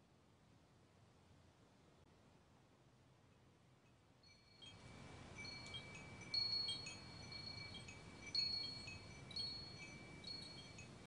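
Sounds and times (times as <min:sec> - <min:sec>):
small chimes ringing: 0:03.9 - 0:11.0.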